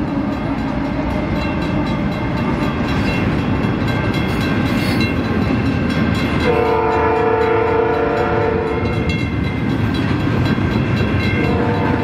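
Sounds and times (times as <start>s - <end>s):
faint crossing bell ringing: 0.0s - 12.0s
train rumbling and rattling: 0.0s - 12.0s
train horn: 6.4s - 9.1s, 11.3s - 12.0s.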